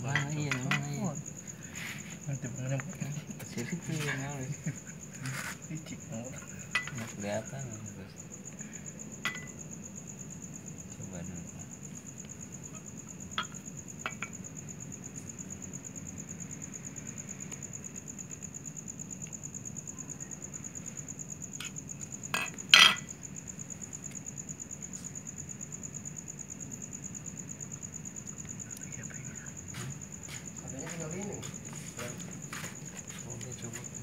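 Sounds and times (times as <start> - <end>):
high-pitched insect drone: 0.0 - 34.0
metal tools clinking: 6.8 - 7.1.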